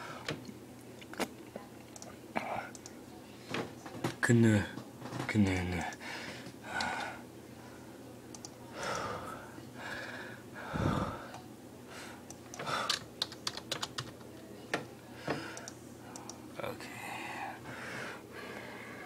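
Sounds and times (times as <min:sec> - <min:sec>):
soft breathy sounds: 0:08.7 - 0:13.0
keyboard keys clicking: 0:12.5 - 0:14.3.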